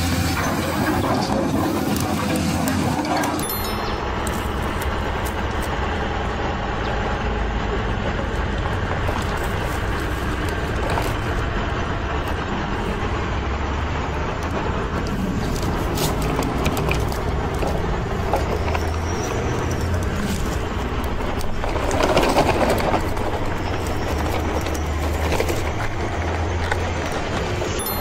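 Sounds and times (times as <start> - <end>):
soil and gravel pouring: 8.8 - 12.0, 15.1 - 28.0
clicks and rattles: 14.3 - 28.0.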